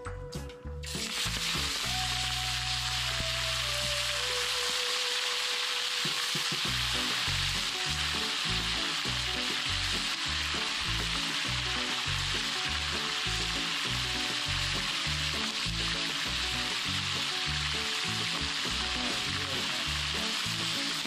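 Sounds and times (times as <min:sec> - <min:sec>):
background music with low beat: 0:00.0 - 0:04.2
lobster sizzling in hot oil: 0:00.8 - 0:21.0.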